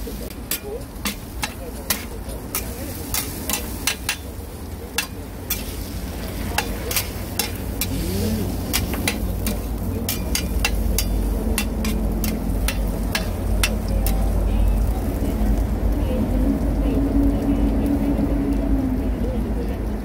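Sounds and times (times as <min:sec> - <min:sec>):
faint sizzle: 0:00.0 - 0:20.0
metal spatula scraping griddle: 0:00.5 - 0:04.3, 0:04.9 - 0:14.3
low rumble: 0:07.7 - 0:20.0.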